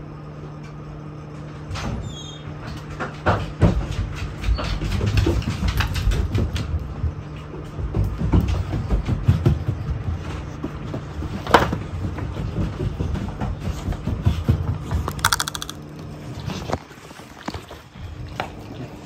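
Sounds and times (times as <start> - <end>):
dog claws clicking on wooden floor: 14.9 - 16.1.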